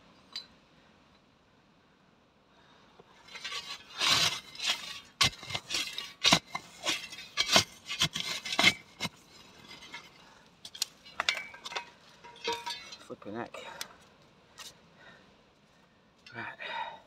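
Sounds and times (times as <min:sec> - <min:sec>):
shovel digging stony soil: 0:03.3 - 0:13.2.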